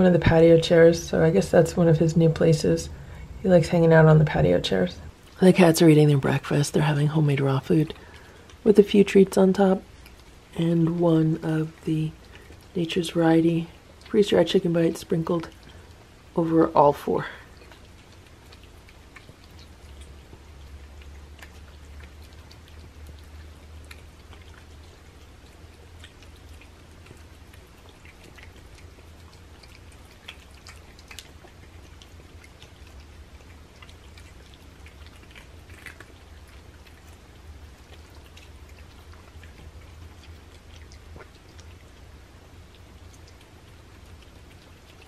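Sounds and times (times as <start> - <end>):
cats chewing and licking: 0.0 - 45.0
low steady hum: 0.0 - 45.0.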